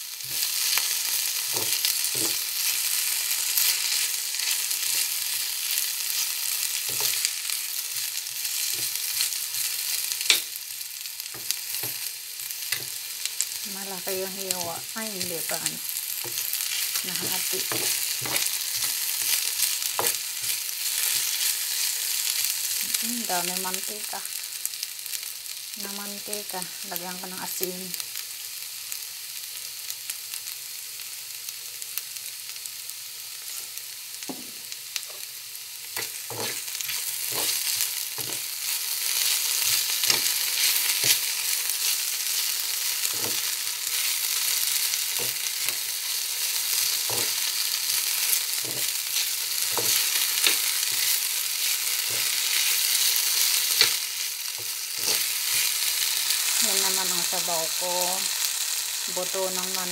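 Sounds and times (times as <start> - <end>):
potatoes sizzling in hot oil: 0.0 - 59.9
metal spoon scraping a pan: 36.0 - 38.5, 39.1 - 43.6, 54.6 - 55.8.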